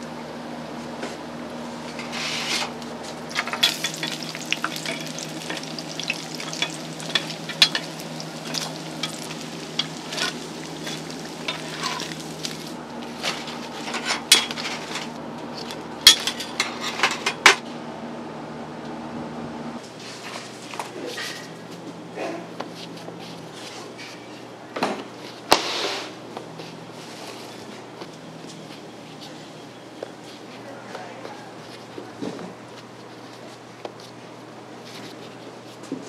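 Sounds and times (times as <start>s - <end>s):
oil sizzling: 3.2s - 12.8s
metal tongs clinking on wok: 3.4s - 12.2s.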